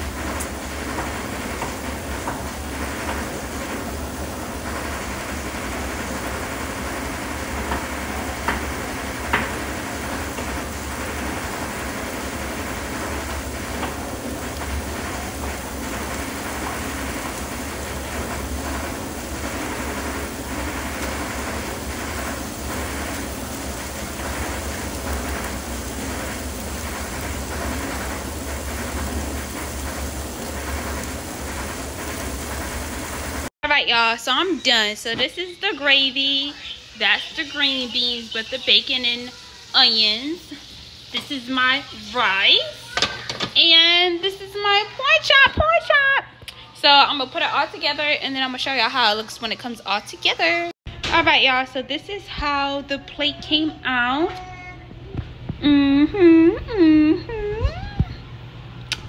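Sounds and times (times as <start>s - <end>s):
pot of food simmering: 0.0s - 33.5s, 36.6s - 44.0s.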